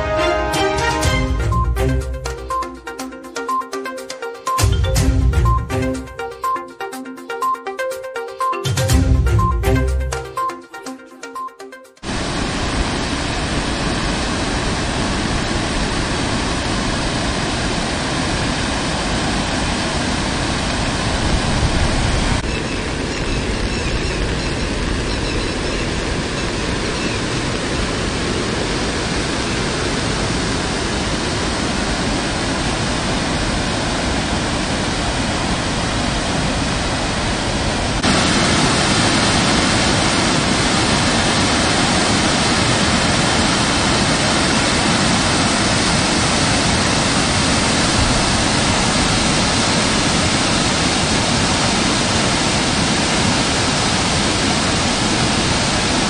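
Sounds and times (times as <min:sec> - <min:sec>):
water rushing over a weir: 0:12.0 - 0:56.0.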